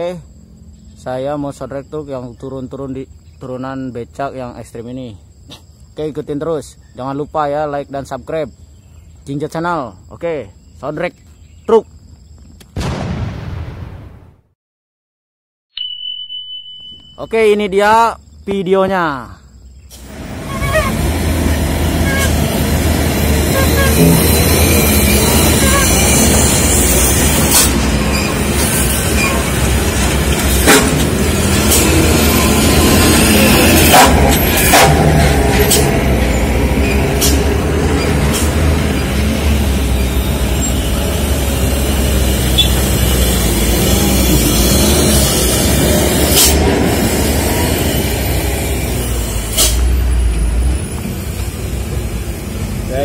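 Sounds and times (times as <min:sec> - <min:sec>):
dump trucks passing: 0:19.8 - 0:53.0
air brake hisses: 0:49.4 - 0:50.0.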